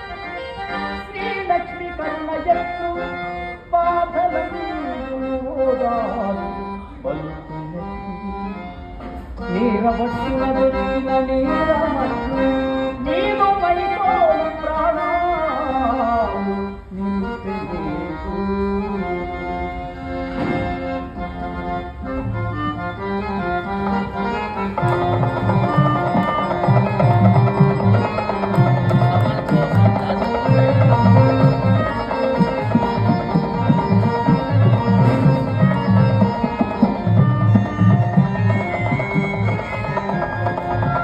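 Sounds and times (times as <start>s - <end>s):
harmonium chords and melody: 0.0s - 41.0s
tabla beat: 23.3s - 41.0s.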